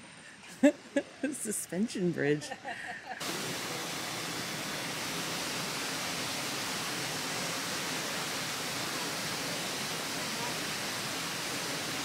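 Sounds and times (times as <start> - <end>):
rushing water: 3.2 - 12.0.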